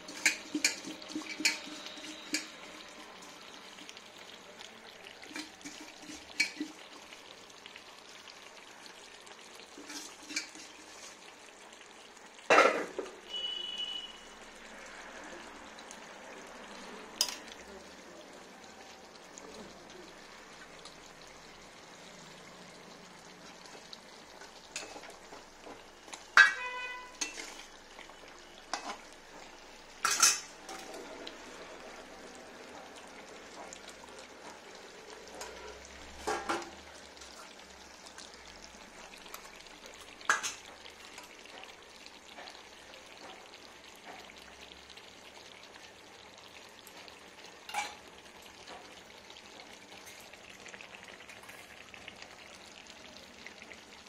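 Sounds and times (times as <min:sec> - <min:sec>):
steel bowl clinking metal pot: 0:00.0 - 0:02.7, 0:05.3 - 0:06.8, 0:09.8 - 0:10.7, 0:26.1 - 0:27.7, 0:30.0 - 0:31.0, 0:47.7 - 0:48.0
cooking sizzling hiss: 0:00.0 - 0:54.0.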